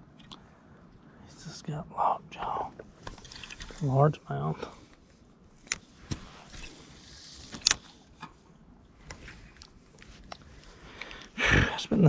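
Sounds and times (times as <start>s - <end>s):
rod handling noise: 3.0s - 3.9s.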